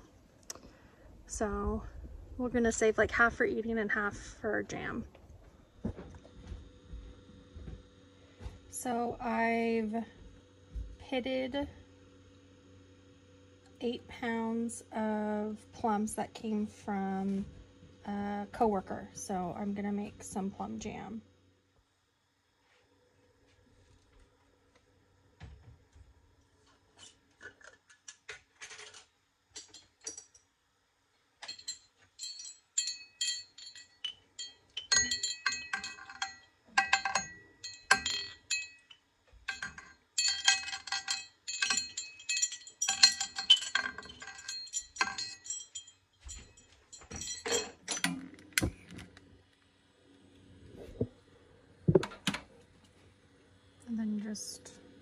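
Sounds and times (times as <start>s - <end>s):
glass jar clinking: 31.4s - 48.3s.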